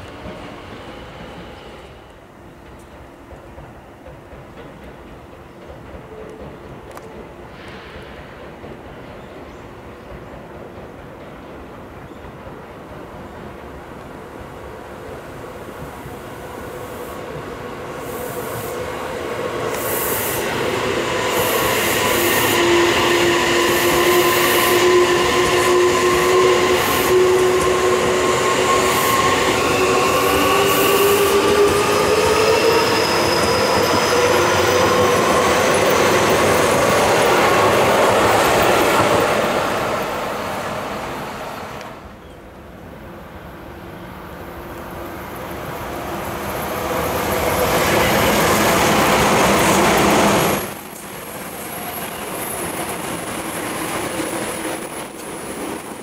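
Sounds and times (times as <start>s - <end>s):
electric train rumbling past: 0.0s - 56.0s
second train approaching: 0.0s - 56.0s
train motor whine rising: 19.7s - 39.3s.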